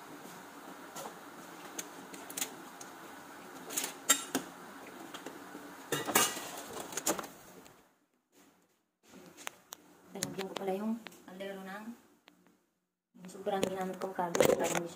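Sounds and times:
kitchen items clinking and knocking: 0:05.9 - 0:07.2.

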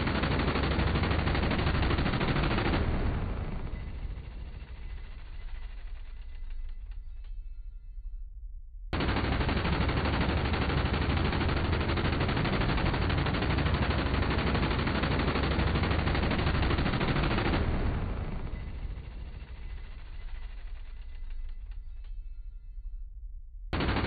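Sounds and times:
minigun firing: 0:00.0 - 0:04.8, 0:09.0 - 0:21.3, 0:23.8 - 0:24.0.

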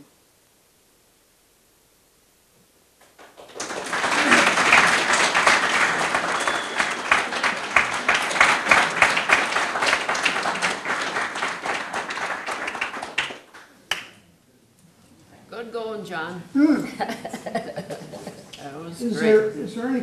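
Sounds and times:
small audience applauding: 0:03.0 - 0:14.3.

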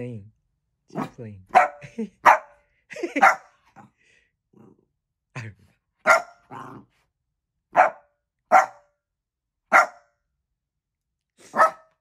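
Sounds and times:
small dog barking: 0:01.0 - 0:02.6, 0:03.2 - 0:03.6, 0:06.0 - 0:06.8, 0:07.7 - 0:08.9, 0:09.7 - 0:10.1, 0:11.4 - 0:12.0.

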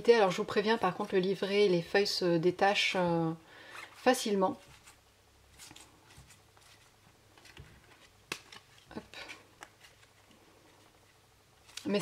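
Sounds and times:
cards rustling and clicking: 0:04.6 - 0:12.0.

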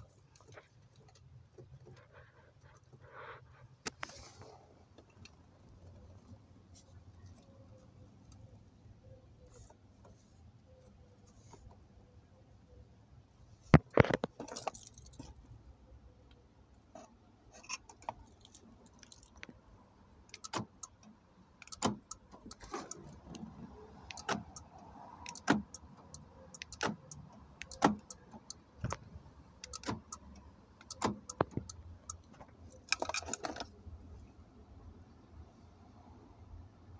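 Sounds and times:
keys jangling: 0:14.4 - 0:15.3
door lock actuators clicking: 0:21.6 - 0:23.2, 0:24.1 - 0:24.7, 0:25.3 - 0:29.0, 0:29.6 - 0:33.6.

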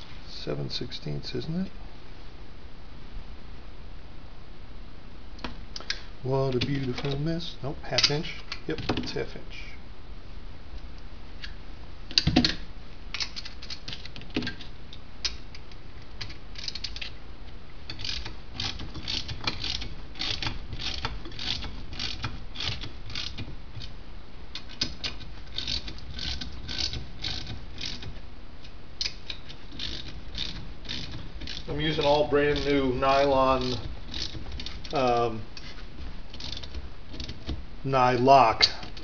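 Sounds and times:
ratchet wrench clicking: 0:17.9 - 0:23.4, 0:25.0 - 0:28.1, 0:29.0 - 0:31.7, 0:32.5 - 0:32.9, 0:33.5 - 0:34.8, 0:36.4 - 0:36.8.

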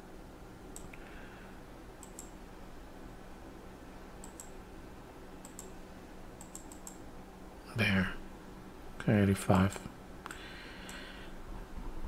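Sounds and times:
faint room hiss: 0:00.0 - 0:12.0
computer mouse clicking: 0:00.8 - 0:01.1, 0:02.0 - 0:02.4, 0:04.2 - 0:04.6, 0:05.4 - 0:05.7, 0:06.4 - 0:07.0, 0:09.6 - 0:11.0.

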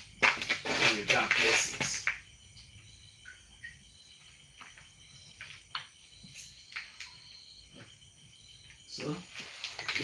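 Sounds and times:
water dripping and splashing: 0:00.0 - 0:07.3, 0:09.3 - 0:10.0
crickets trilling: 0:00.0 - 0:10.0.

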